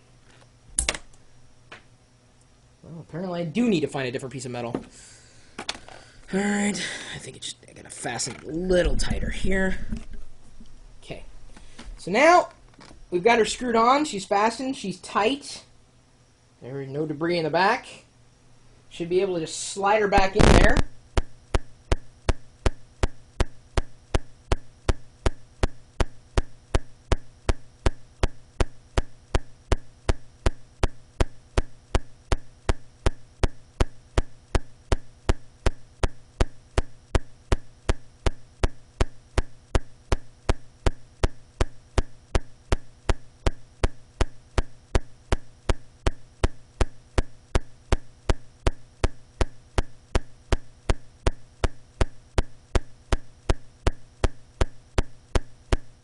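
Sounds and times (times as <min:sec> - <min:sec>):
mains hum: 0:00.0 - 0:56.0
electrical popping: 0:20.1 - 0:56.0.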